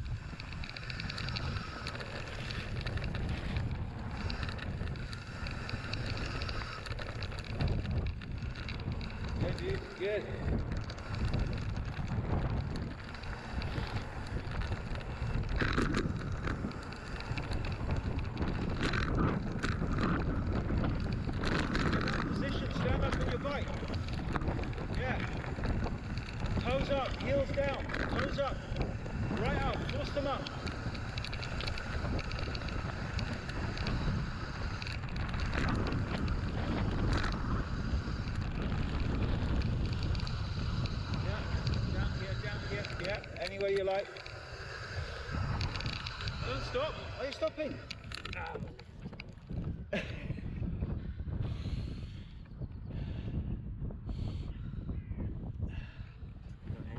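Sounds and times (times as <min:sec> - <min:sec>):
bike clattering over bumps: 0:00.0 - 0:50.2
bike tyres rolling on gravel: 0:00.0 - 0:53.2
wind buffeting microphone: 0:00.0 - 0:56.9.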